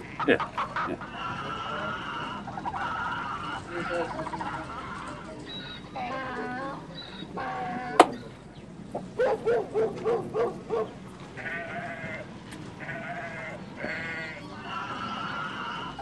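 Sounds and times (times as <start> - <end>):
animal bleating: 1.1 - 5.2, 11.4 - 16.0.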